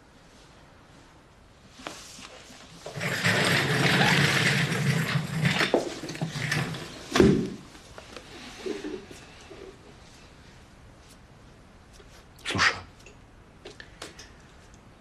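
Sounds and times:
wheeled stool rolling: 2.2 - 10.0.

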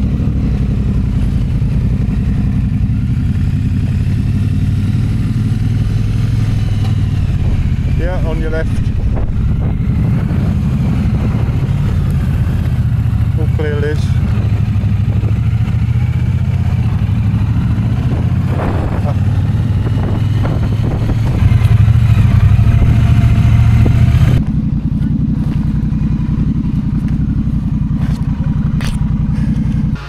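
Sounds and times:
motorcycle engine running: 0.0 - 30.0
wind noise on microphone: 5.7 - 13.1, 14.8 - 24.6.

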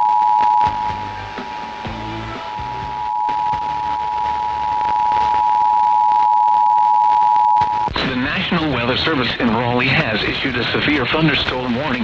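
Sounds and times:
two-tone alert signal: 0.0 - 1.0, 2.4 - 8.0
faint music: 0.0 - 5.8.

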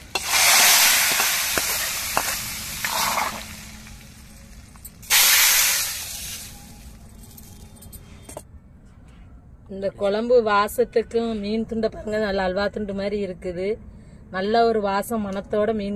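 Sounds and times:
hot oil sizzling with hiss: 0.0 - 7.0.

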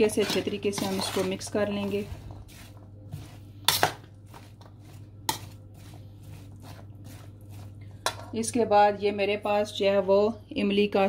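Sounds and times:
metal spoon scraping metal bowl: 0.0 - 8.4.

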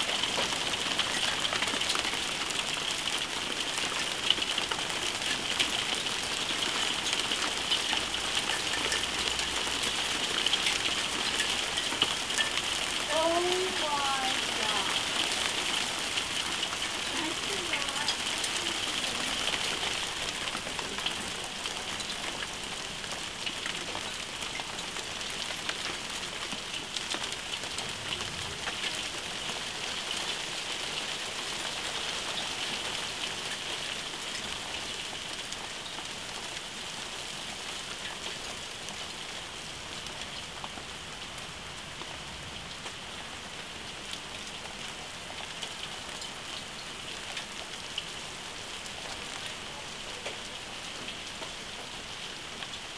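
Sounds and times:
hail and heavy rain pelting: 0.0 - 52.9.

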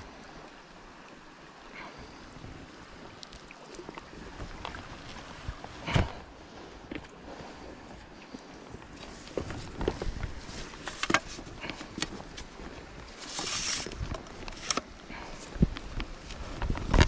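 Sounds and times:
clicks and knocks of fishing tackle: 9.0 - 17.0.

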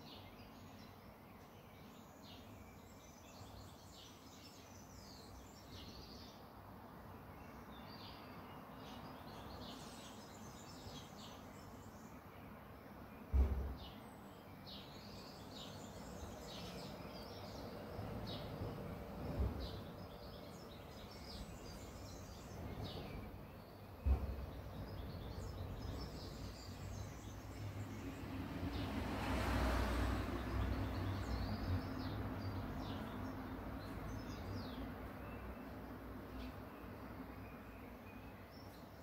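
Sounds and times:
small birds chirping: 0.0 - 39.0
sharp knock: 13.3 - 13.8
vehicle passing: 24.8 - 35.2.

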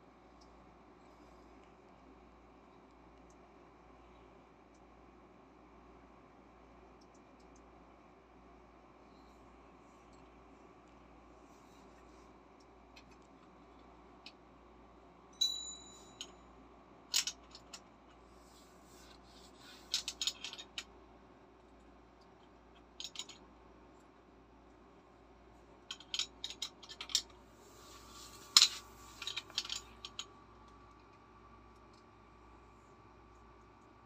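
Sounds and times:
metal wrenches clinking and scraping: 19.8 - 20.8, 25.9 - 27.2, 28.2 - 30.2.

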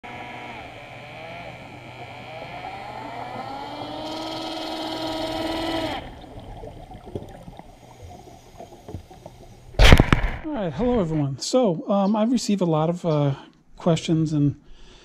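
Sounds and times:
boat motor underwater hum: 0.0 - 9.8
faint underwater clicks: 0.5 - 10.5.

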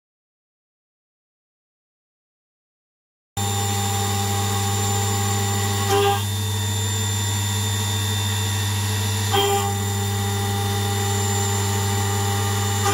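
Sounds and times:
milling machine cutting metal: 3.4 - 12.9.

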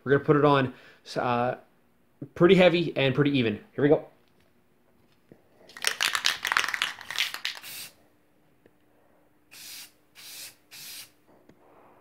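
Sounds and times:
clear coat spray hissing: 5.8 - 8.0, 9.5 - 11.2.

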